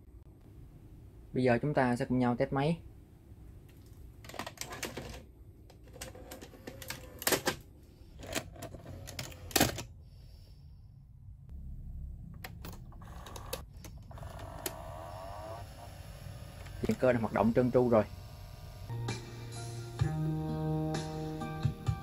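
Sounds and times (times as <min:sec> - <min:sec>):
cassette mechanism clicks and clunks: 0:04.3 - 0:09.9
low motor hum: 0:11.1 - 0:19.2.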